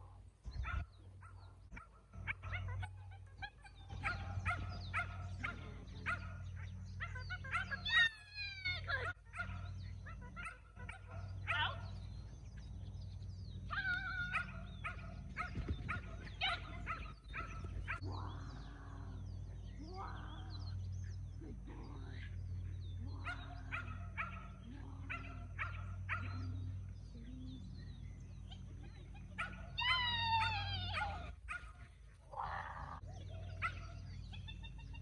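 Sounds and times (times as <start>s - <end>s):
steady low hum: 0.0s - 35.0s
dog barking and yipping: 0.6s - 11.9s, 13.7s - 18.0s, 23.2s - 26.5s, 28.5s - 32.2s, 33.4s - 35.0s.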